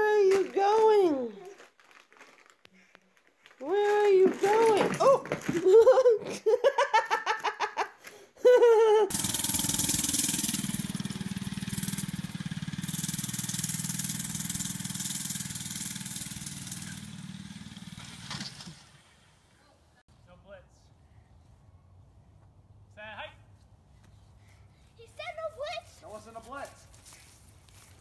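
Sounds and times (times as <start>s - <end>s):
minibike engine running: 9.1s - 19.4s.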